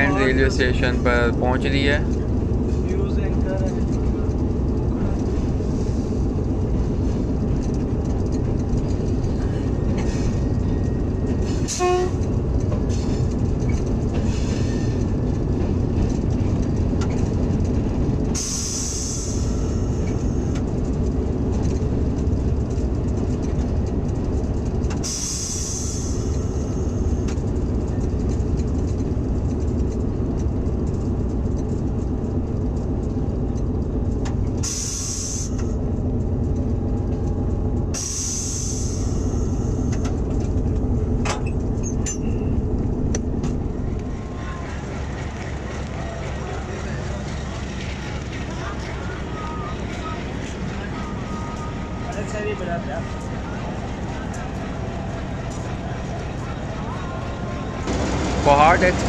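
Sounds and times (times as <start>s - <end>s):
locomotive engine running: 0.0s - 59.0s
air brakes hissing: 9.6s - 10.6s, 11.3s - 12.2s, 14.1s - 15.1s, 18.3s - 20.4s, 24.9s - 27.1s, 34.6s - 35.8s, 37.9s - 40.1s.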